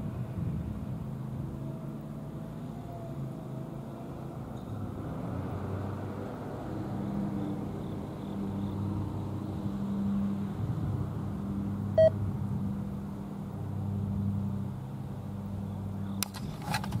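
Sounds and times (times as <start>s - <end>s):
sharp clicks: 16.2s - 17.0s.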